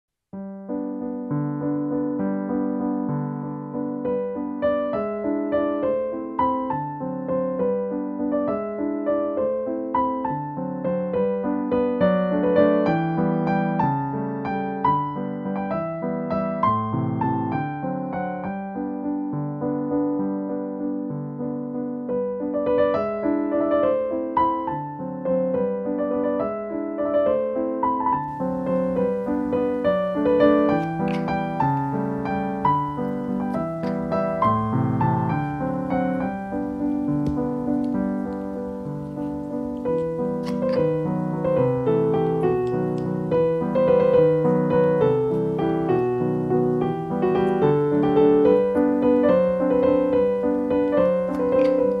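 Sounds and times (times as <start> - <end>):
piano music: 0.4 - 52.0.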